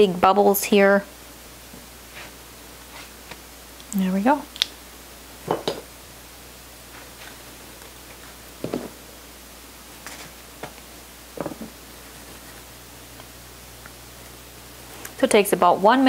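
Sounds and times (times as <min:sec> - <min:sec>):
kitchen knocks and scrapes: 0:05.5 - 0:05.9.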